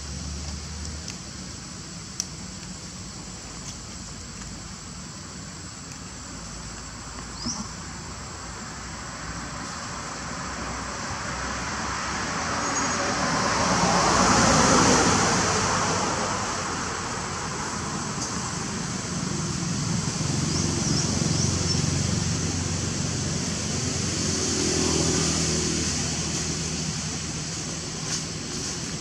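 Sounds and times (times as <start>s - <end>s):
high insect drone: 0.0s - 29.0s
vehicle passing: 19.1s - 28.7s.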